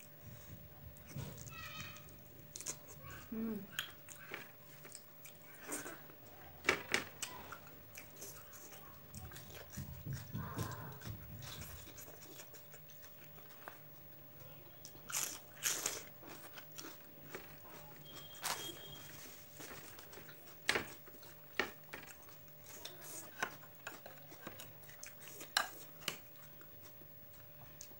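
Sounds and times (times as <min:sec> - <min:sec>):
person chewing with mouth smacks: 0:00.3 - 0:14.1, 0:14.8 - 0:27.9.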